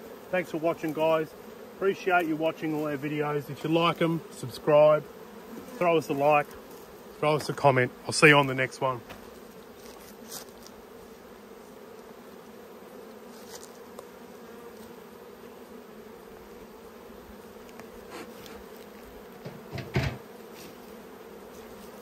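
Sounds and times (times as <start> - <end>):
honeybees buzzing: 0.0 - 22.0
knocks: 19.4 - 20.2.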